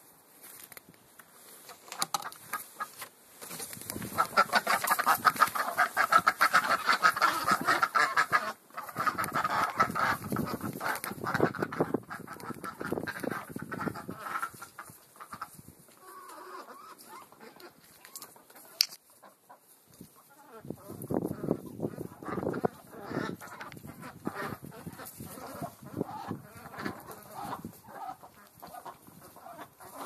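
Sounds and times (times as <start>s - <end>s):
ducks quacking: 3.9s - 30.0s.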